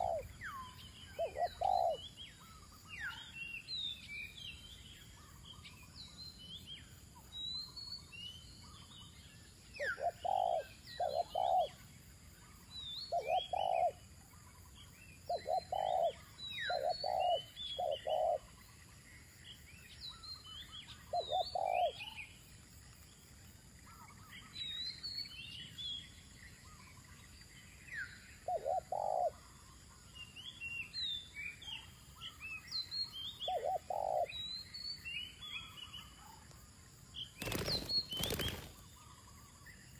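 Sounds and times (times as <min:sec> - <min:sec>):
dove cooing: 0:00.0 - 0:00.3, 0:01.2 - 0:02.0, 0:09.8 - 0:11.8, 0:13.1 - 0:14.0, 0:15.3 - 0:18.5, 0:21.2 - 0:22.0, 0:28.4 - 0:29.4, 0:33.5 - 0:34.3
small birds chirping: 0:00.0 - 0:39.9.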